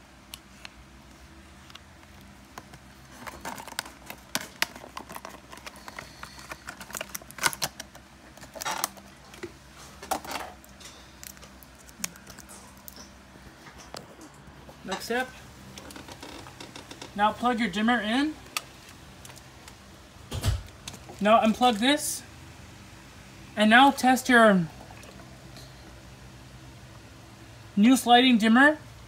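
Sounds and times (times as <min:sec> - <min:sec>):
plastic packaging crinkling: 0:02.1 - 0:13.2.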